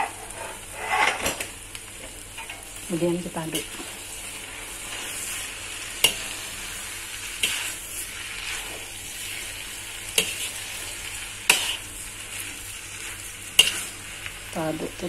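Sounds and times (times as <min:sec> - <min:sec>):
metal spatula scraping wok: 0:00.0 - 0:01.4, 0:03.5 - 0:12.0, 0:13.0 - 0:14.1
noodles sizzling in a wok: 0:00.0 - 0:15.0.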